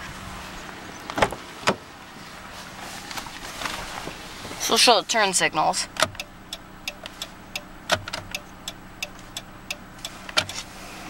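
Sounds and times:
engine idling faintly: 0.0 - 11.0
turn signal ticking: 4.6 - 11.0.

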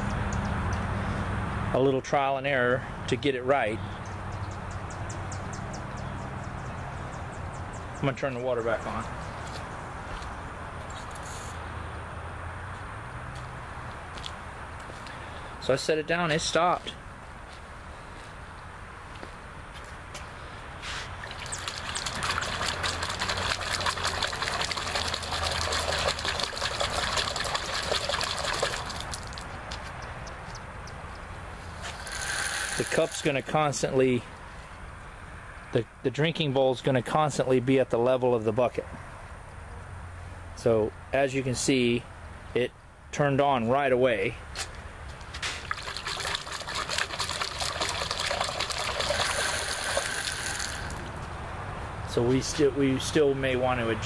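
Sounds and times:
water splashing and sloshing: 21.0 - 31.1, 45.4 - 51.0
toilet fill valve hissing: 32.0 - 33.2, 49.1 - 50.9.

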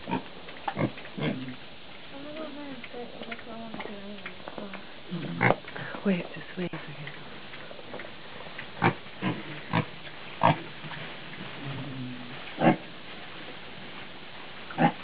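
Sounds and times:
pigs grunting: 0.0 - 1.6, 5.1 - 5.9, 8.7 - 10.9, 11.5 - 12.9, 14.7 - 15.0.

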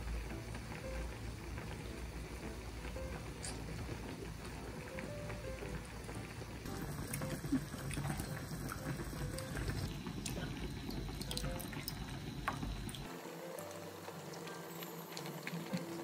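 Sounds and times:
water pouring into metal pan: 3.9 - 16.0.

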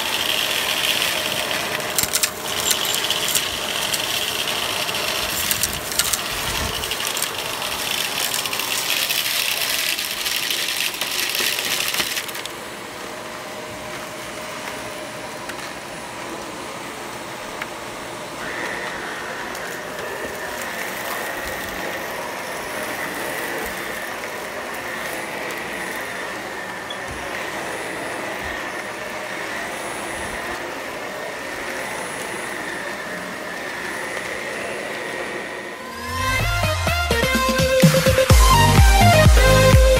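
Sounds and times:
high whine: 0.0 - 39.9
vacuum cleaner running: 0.0 - 39.9
debris rattling up vacuum tube: 0.2 - 12.5.

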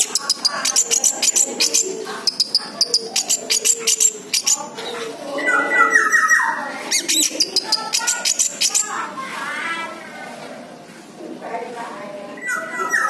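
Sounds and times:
bird singing high chirps: 0.0 - 4.7, 5.4 - 9.0.

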